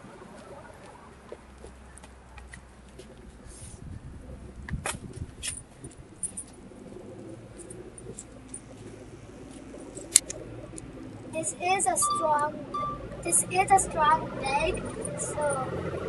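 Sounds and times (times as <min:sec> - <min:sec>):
low rumble: 0:03.2 - 0:16.0.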